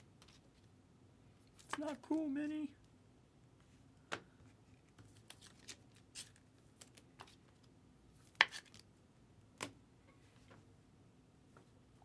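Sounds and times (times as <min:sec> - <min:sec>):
cards clicking and rustling: 0:01.5 - 0:02.2, 0:04.1 - 0:08.8.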